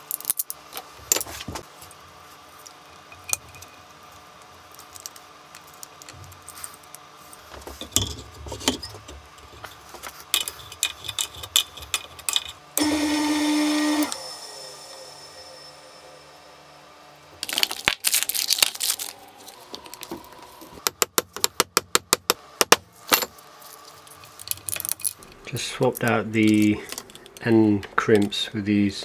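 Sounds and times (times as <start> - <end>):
hands handling wiring and metal parts: 0.0 - 12.6, 17.4 - 20.4, 23.0 - 28.4
loud steady hum: 0.0 - 29.0.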